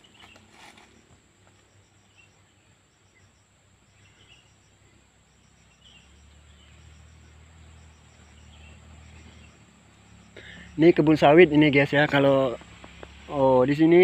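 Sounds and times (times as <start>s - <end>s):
insects droning: 0.0s - 14.0s
faint short chirps: 7.9s - 10.8s.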